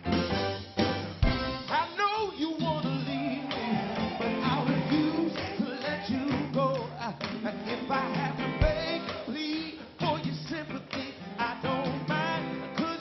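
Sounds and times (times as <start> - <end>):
live soul band playing: 0.0 - 13.0
man singing lead vocals: 1.7 - 13.0
backing voices: 2.7 - 12.6.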